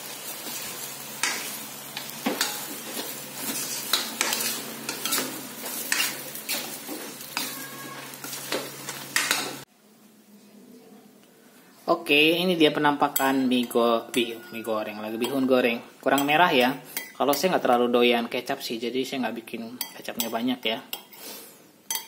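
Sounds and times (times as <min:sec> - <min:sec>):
noodles sizzling in a wok: 0:00.0 - 0:09.7
metal spatula scraping a pan: 0:00.3 - 0:09.6, 0:13.1 - 0:17.5.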